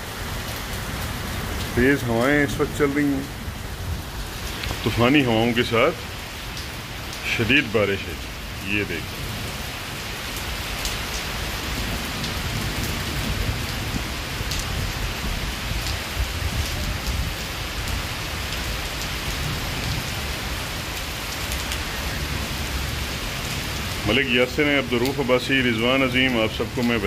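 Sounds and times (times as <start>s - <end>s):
heavy rain hissing: 0.0s - 27.0s
close raindrop ticks: 0.4s - 9.2s, 9.8s - 20.2s, 20.8s - 27.0s
wind gusting on microphone: 10.5s - 24.0s.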